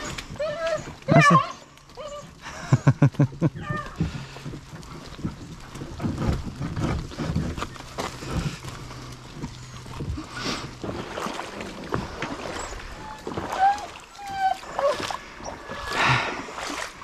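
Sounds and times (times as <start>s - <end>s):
kayak hull dragging on dirt: 0.0s - 17.0s
knocks and scrapes: 4.0s - 11.3s.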